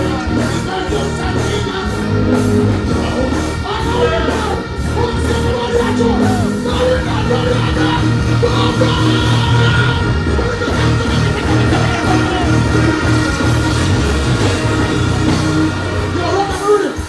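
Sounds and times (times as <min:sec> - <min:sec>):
man singing: 0:00.0 - 0:13.4
live band music: 0:00.0 - 0:17.0.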